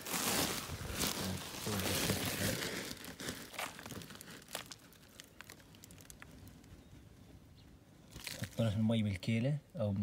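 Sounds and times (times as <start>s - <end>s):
plastic sack crinkling: 0.0s - 6.7s, 8.1s - 8.7s.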